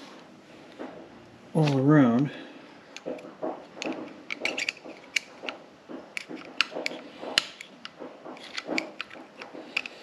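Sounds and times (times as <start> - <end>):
screwdriver clicking and scraping metal: 3.0 - 10.0.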